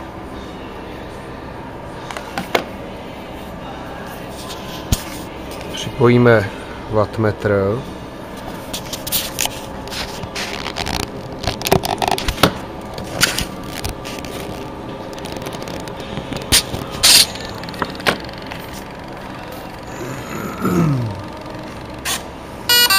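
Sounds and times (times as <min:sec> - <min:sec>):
cables scraping and rustling: 0:08.3 - 0:12.3, 0:13.0 - 0:17.1.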